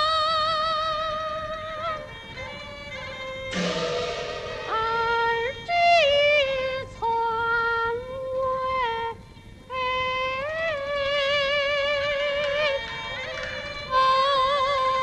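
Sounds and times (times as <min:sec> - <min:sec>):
percussion crash: 0:03.5 - 0:06.8
woman singing opera: 0:09.8 - 0:13.2, 0:13.9 - 0:15.0.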